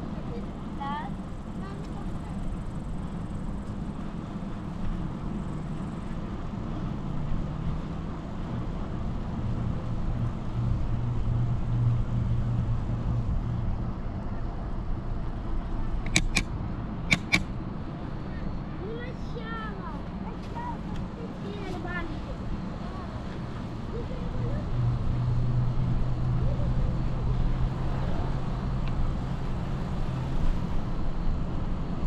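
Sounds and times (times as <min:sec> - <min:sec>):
sharp clicks: 0:16.0 - 0:16.5, 0:17.1 - 0:17.5.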